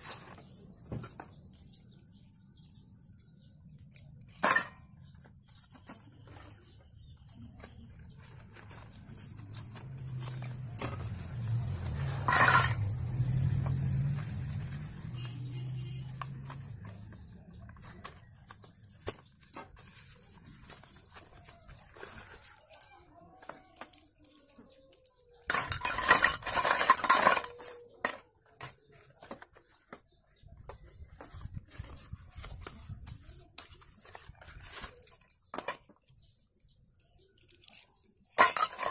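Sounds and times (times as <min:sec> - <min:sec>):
pencils clattering into metal bowl: 0:03.9 - 0:06.5, 0:07.6 - 0:30.0, 0:31.8 - 0:36.2, 0:37.0 - 0:38.9.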